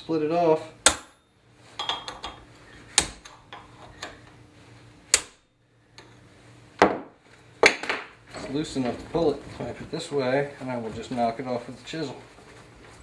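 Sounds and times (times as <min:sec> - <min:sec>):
chisel striking metal: 0:00.8 - 0:02.4, 0:03.0 - 0:03.3, 0:05.1 - 0:05.4.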